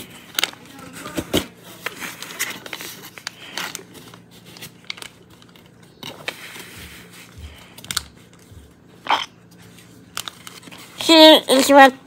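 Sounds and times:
paper and wrappers crinkling: 0:00.0 - 0:08.9, 0:09.5 - 0:11.9.

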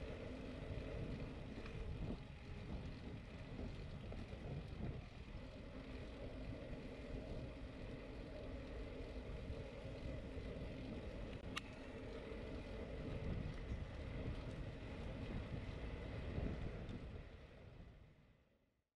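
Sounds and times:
wind rumbling on microphone: 0:00.0 - 0:18.2.

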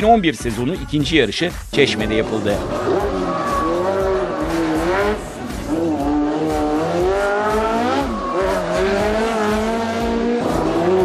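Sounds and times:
small race car engine revving: 0:02.3 - 0:11.0.

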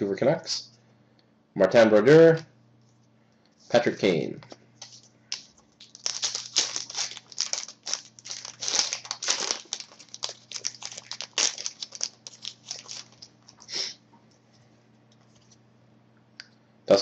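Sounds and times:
cards being flipped through: 0:04.8 - 0:13.6.

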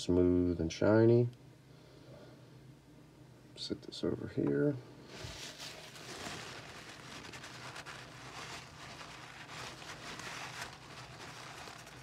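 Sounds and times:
cloth rubbing metal: 0:05.1 - 0:12.0.

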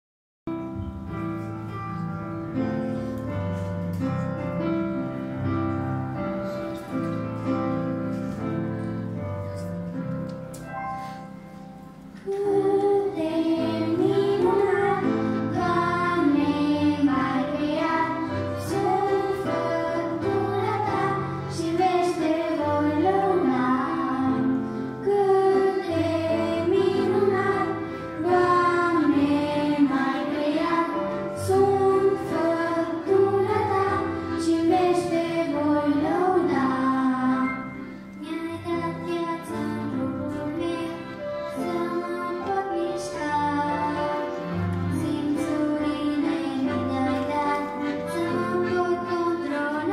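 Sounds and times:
instrumental accompaniment: 0:00.5 - 0:49.9
children singing into microphones: 0:12.2 - 0:49.9.

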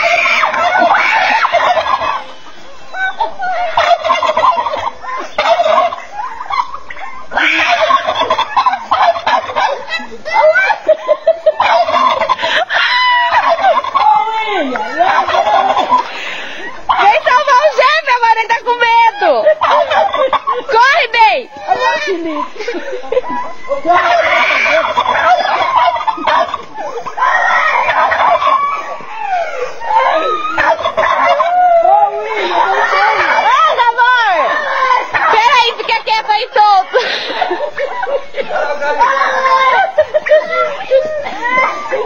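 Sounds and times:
rooster crowing: 0:00.0 - 0:02.4, 0:11.5 - 0:16.0, 0:23.4 - 0:35.6
chickens clucking: 0:00.0 - 0:42.0
poultry calling: 0:00.0 - 0:42.0.

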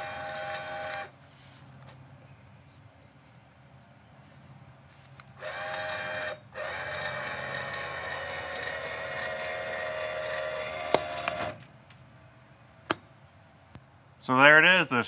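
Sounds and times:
jack motor whining: 0:00.0 - 0:01.1, 0:05.4 - 0:11.7.

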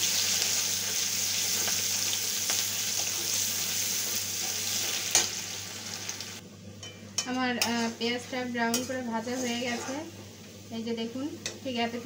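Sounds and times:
onions sizzling in hot oil: 0:00.0 - 0:06.4, 0:07.5 - 0:12.0
metal spatula stirring in pan: 0:06.8 - 0:10.1.

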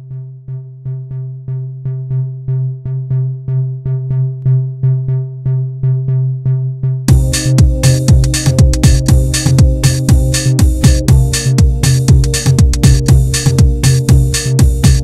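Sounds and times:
pulsing synthesizer bass: 0:00.0 - 0:15.0
drum machine beat: 0:07.1 - 0:15.0.

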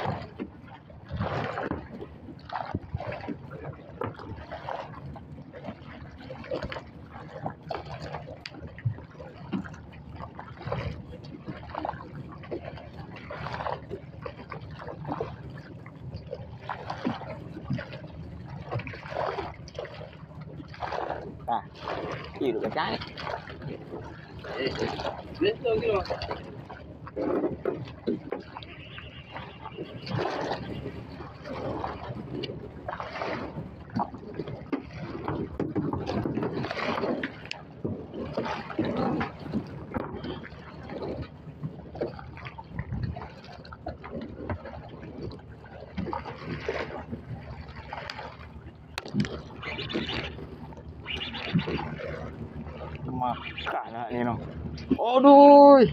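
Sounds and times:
water lapping against boat hull: 0:00.0 - 0:55.9
wind on microphone: 0:42.6 - 0:43.3.

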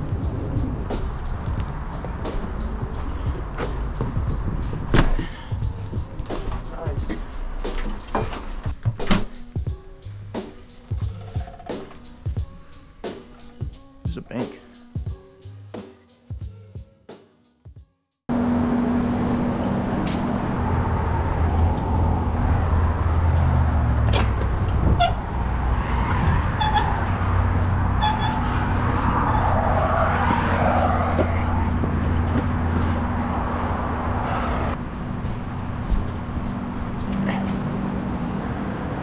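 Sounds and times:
loud rumble with low hum: 0:00.0 - 0:06.9, 0:18.3 - 0:39.0.

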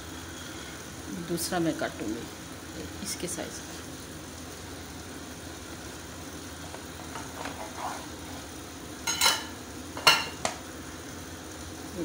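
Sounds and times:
knife scraping on wooden board: 0:07.3 - 0:08.1.

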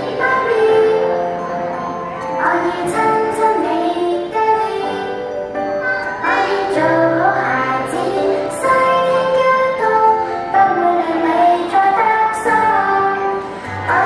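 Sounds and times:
person singing: 0:00.0 - 0:01.4, 0:06.1 - 0:14.0
instrumental backing music: 0:00.0 - 0:14.0.

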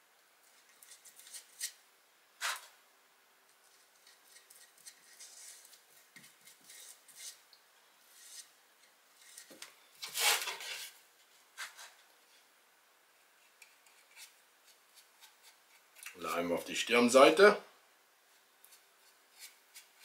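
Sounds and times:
rubbing and scraping on wood: 0:03.7 - 0:07.5, 0:08.1 - 0:12.1, 0:18.4 - 0:20.0.

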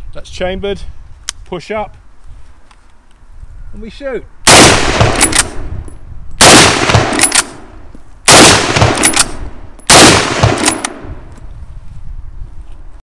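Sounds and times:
rifle shots echoing: 0:04.5 - 0:05.7, 0:06.4 - 0:07.7, 0:08.3 - 0:11.2.

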